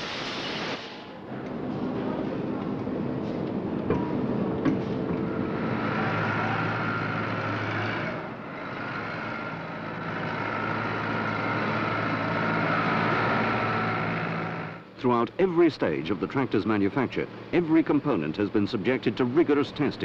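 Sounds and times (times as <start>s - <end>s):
factory machinery noise: 0.0s - 20.0s
tractor engine running: 1.2s - 20.0s.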